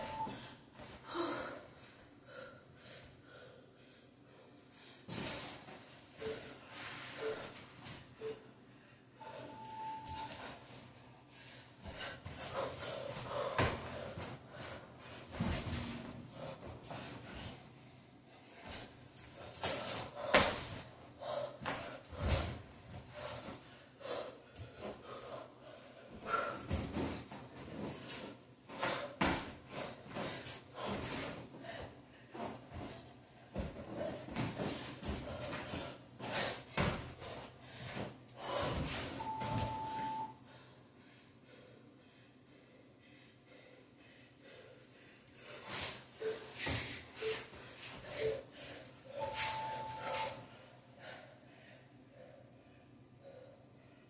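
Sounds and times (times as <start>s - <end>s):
electronic timer beep: 0.0s - 0.4s, 9.4s - 10.3s, 39.2s - 40.4s, 49.2s - 50.4s
person breathing hard: 0.0s - 39.4s, 40.4s - 54.0s.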